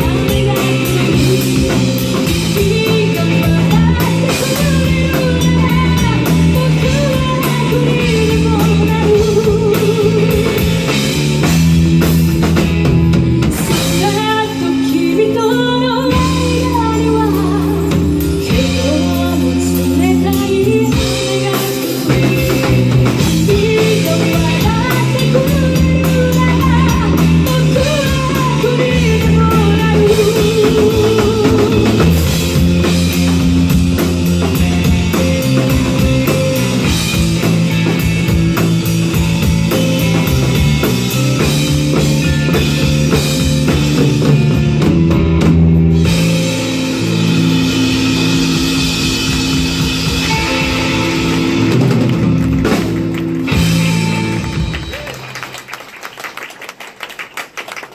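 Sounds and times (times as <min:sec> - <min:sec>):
woman singing: 0:00.0 - 0:10.9, 0:13.6 - 0:33.3
bass guitar: 0:00.0 - 0:56.4
drum kit: 0:00.0 - 0:57.9
electric guitar: 0:00.0 - 0:57.9.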